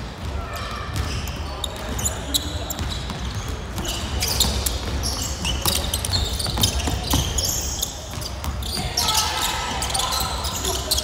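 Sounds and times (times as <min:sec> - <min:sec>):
sneakers squeaking on court: 0:00.2 - 0:11.0
basketball dribbling: 0:02.7 - 0:09.0.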